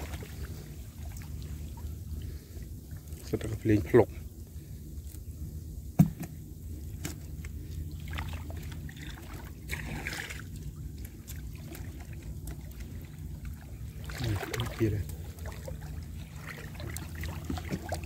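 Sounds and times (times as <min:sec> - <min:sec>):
water sloshing and splashing: 0:00.0 - 0:05.2, 0:05.9 - 0:18.0
steady low rumble: 0:00.0 - 0:18.0.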